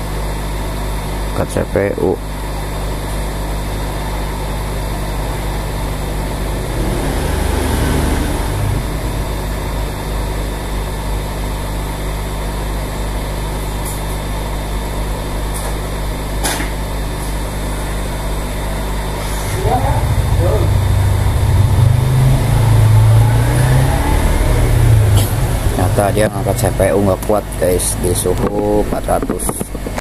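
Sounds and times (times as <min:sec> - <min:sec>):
hot air blower rushing air: 0:03.6 - 0:12.9, 0:17.2 - 0:29.0.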